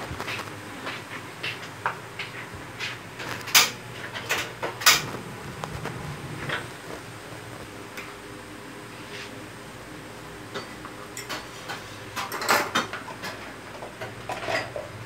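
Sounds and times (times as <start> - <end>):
kitchen items clicking and knocking: 10.6 - 15.0.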